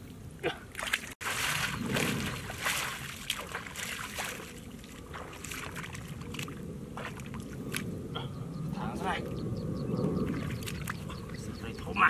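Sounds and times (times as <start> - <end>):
bare feet splashing in muddy water: 0.5 - 7.9, 10.3 - 11.5
steady low rumble: 1.2 - 12.0.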